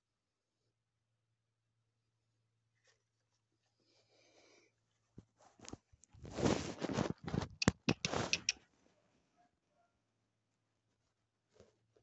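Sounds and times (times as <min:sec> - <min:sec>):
soft rustle: 0:02.6 - 0:09.1, 0:10.8 - 0:12.0.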